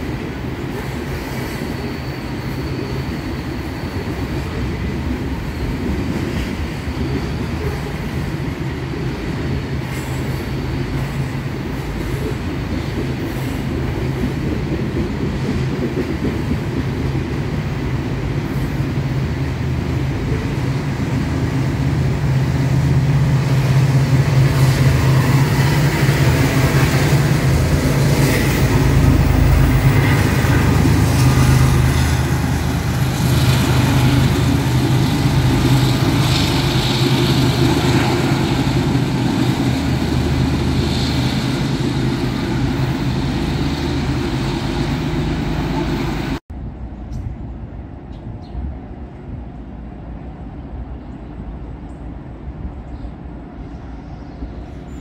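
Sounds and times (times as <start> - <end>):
diesel train passing: 0.0 - 55.0.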